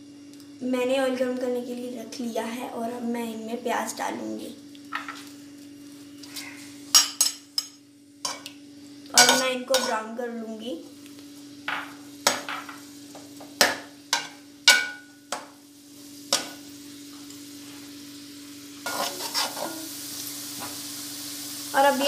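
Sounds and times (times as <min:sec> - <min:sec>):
steady low hum: 0:00.0 - 0:21.1
onions sizzling in oil: 0:03.3 - 0:22.0
metal spatula scraping pan: 0:09.2 - 0:10.0, 0:18.9 - 0:19.9.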